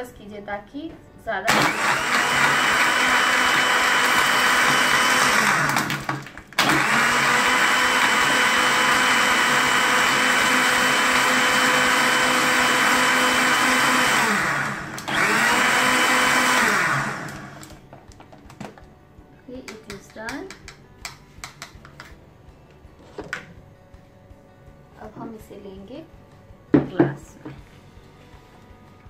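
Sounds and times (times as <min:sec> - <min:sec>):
electric blender running: 0:01.5 - 0:17.8.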